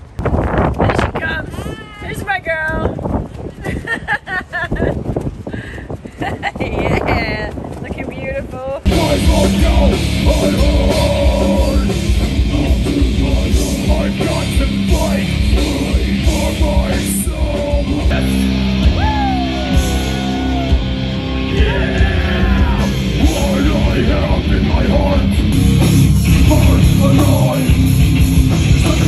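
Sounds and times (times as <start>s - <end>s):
heavy metal music: 8.8s - 29.0s.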